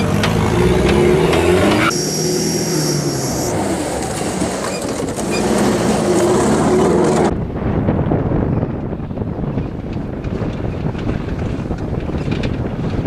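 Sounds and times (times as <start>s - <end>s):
truck engine revving: 0.0s - 7.3s
thin high whine: 1.9s - 3.6s
wind buffeting microphone: 6.0s - 13.0s.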